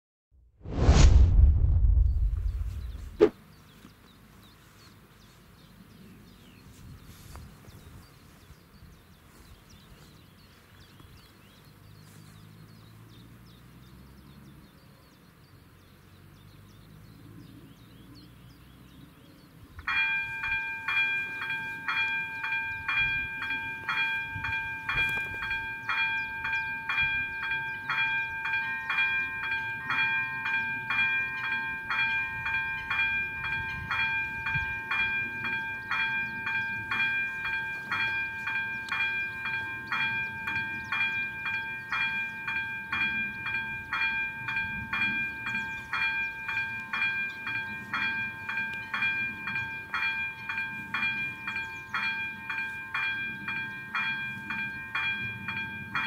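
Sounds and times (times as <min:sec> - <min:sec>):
faint outdoor background: 0:00.4 - 0:56.0
level crossing warning bell: 0:19.8 - 0:56.0.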